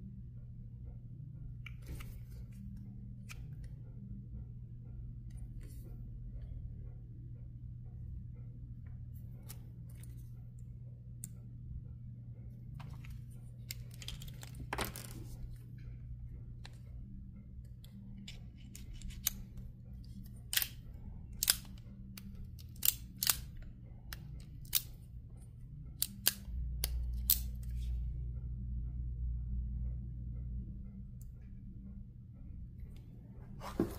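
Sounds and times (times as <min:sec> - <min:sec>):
steady low hum: 0:00.0 - 0:33.9
revolver metallic clicks: 0:20.2 - 0:25.0, 0:26.0 - 0:27.7.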